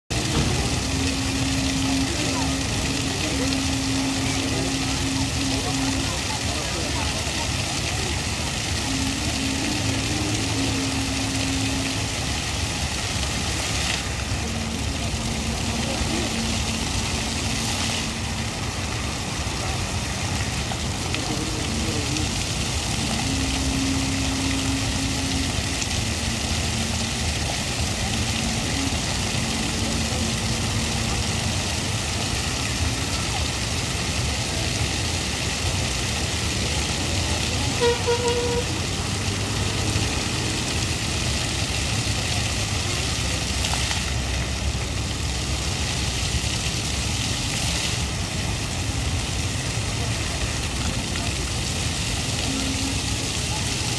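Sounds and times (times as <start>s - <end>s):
fountain water splashing: 0.1s - 53.9s
road traffic hum: 0.1s - 53.9s
vehicle horn toot: 37.7s - 38.8s.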